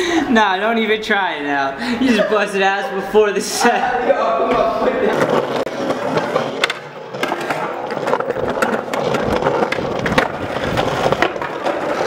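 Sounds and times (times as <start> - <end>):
skateboard wheels rolling on concrete: 4.5 - 12.0
skateboard clacks and scrapes: 4.8 - 12.0.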